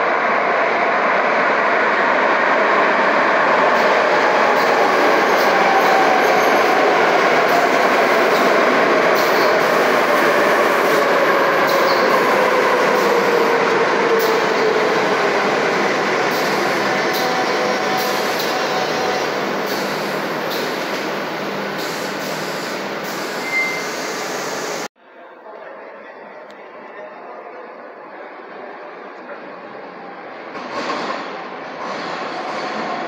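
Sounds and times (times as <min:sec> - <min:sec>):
train wheels rumbling on rail: 0:30.5 - 0:33.0.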